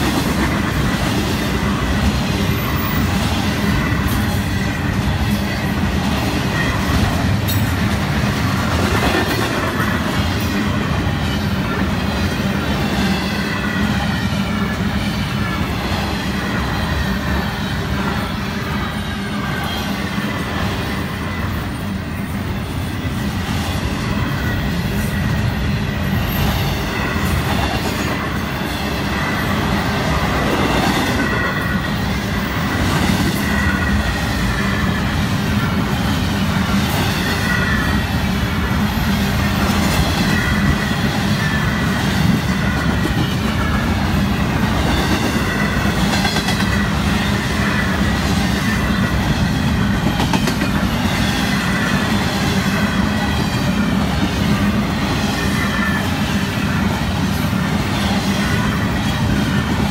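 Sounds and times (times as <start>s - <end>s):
train wheels rumbling on rails: 0.0s - 59.9s
high wheel squeal: 1.6s - 7.0s.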